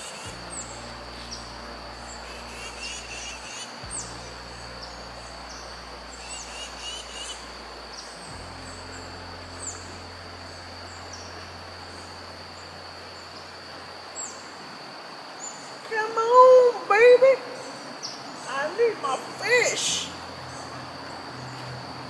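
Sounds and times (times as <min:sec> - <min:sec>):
birds chirping: 0:00.0 - 0:14.5
birds twittering: 0:00.0 - 0:14.5
high-pitched insect drone: 0:00.0 - 0:22.0
river running over rocks: 0:00.0 - 0:22.0.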